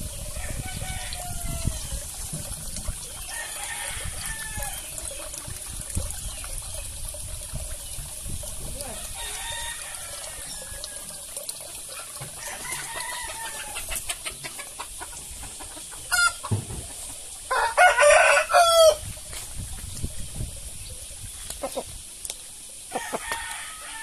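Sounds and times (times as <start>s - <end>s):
rooster crowing: 0.4s - 2.0s, 3.3s - 4.8s, 9.0s - 11.1s, 12.4s - 13.9s, 16.1s - 16.4s, 17.5s - 19.0s, 22.9s - 24.0s
chickens clucking: 11.1s - 17.9s, 19.9s - 22.0s.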